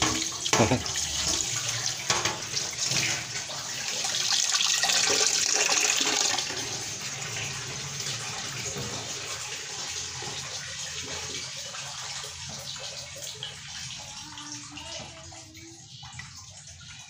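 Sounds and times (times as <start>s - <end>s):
tap water splashing into sink: 0.0s - 17.0s
water draining into metal pot: 0.0s - 17.0s.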